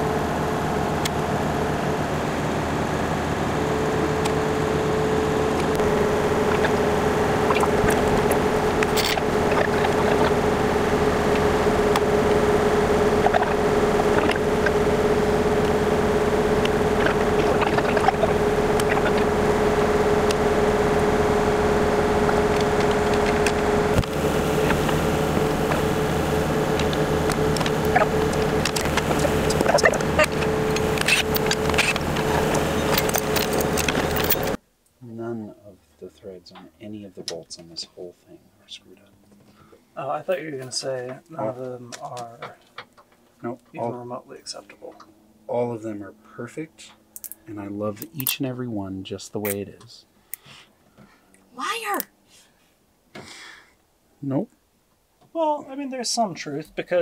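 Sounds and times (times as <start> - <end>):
held hum: 0.0 - 42.7
mechanical engine drone: 0.0 - 50.0.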